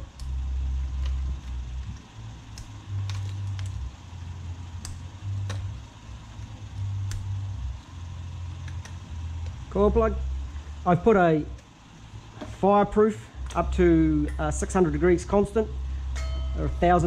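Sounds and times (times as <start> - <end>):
low rumble: 0.0 - 17.0
plastic connectors clicking: 1.0 - 3.9.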